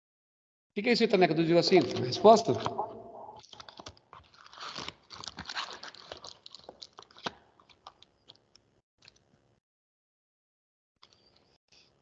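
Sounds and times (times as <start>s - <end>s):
faint clicks and crackles: 3.4s - 9.4s.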